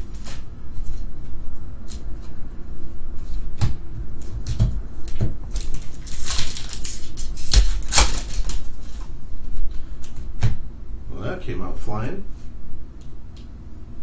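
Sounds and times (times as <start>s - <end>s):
foil pack crinkling and tearing: 5.5s - 9.0s.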